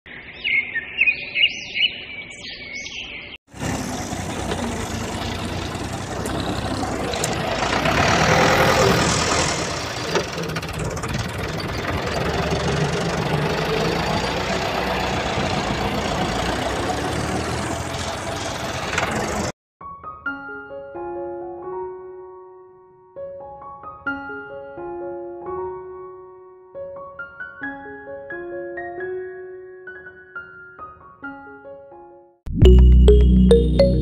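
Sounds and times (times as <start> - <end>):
motor noise: 3.5 - 19.5
high chirping notes: 32.5 - 34.0.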